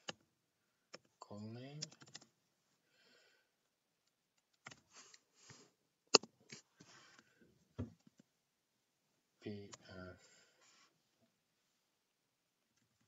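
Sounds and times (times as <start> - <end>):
computer keyboard keystrokes: 1.8 - 2.3, 4.4 - 4.8
soft breathing: 2.7 - 3.7, 6.7 - 7.6, 10.2 - 11.1.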